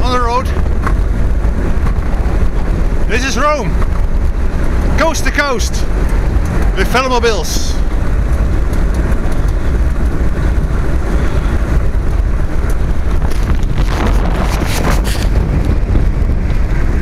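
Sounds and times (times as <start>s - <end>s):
wind buffeting microphone: 0.0s - 17.0s
brief scraping noises: 13.3s - 15.4s.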